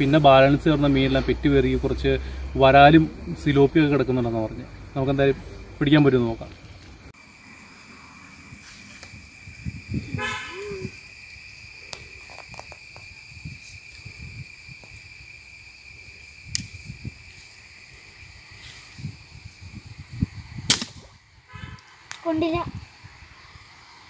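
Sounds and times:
insect drone: 0.0s - 24.0s
short horn toot: 10.1s - 10.9s, 21.5s - 21.9s
faint sharp clicks: 16.5s - 16.8s.

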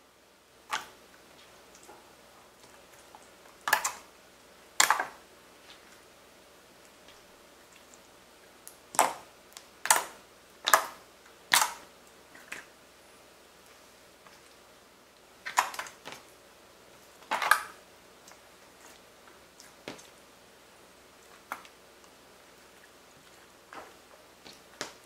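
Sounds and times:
slime wet pops and crackles: 2.6s - 4.1s, 8.6s - 12.7s, 15.4s - 16.3s.

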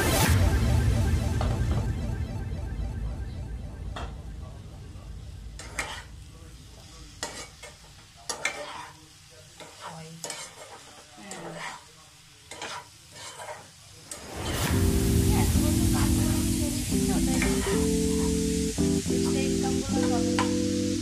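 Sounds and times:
food frying in pan: 5.4s - 21.0s
spatula scraping pan: 5.6s - 6.1s, 7.2s - 9.0s, 9.6s - 11.9s, 12.5s - 14.6s.

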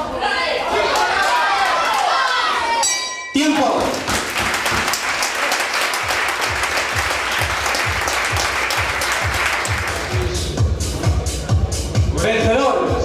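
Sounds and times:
audience applauding: 3.6s - 10.4s.

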